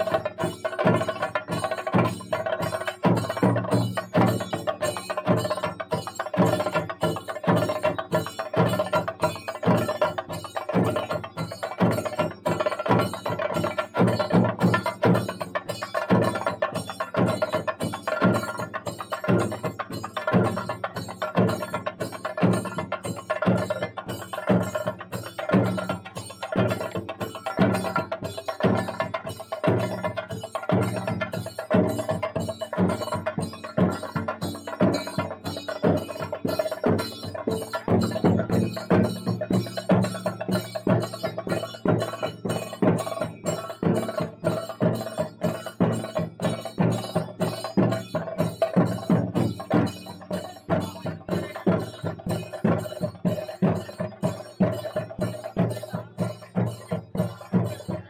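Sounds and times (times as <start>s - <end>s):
drum and wood block strikes: 0.0s - 58.0s.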